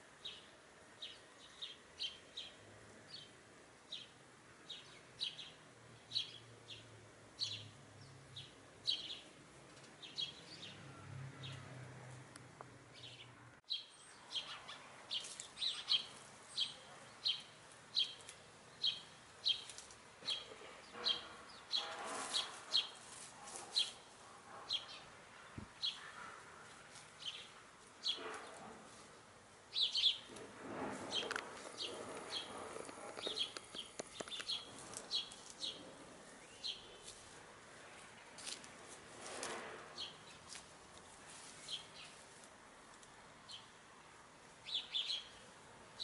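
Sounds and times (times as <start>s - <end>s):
small bird chirping: 13.0s - 23.0s, 29.7s - 30.3s, 31.1s - 37.1s.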